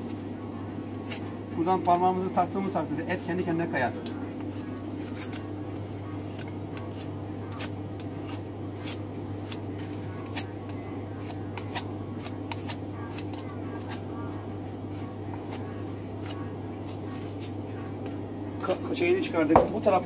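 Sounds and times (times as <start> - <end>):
steady low hum: 0.0 - 20.0
knife scraping meat off bones: 4.5 - 5.5, 6.2 - 10.6, 11.2 - 14.1.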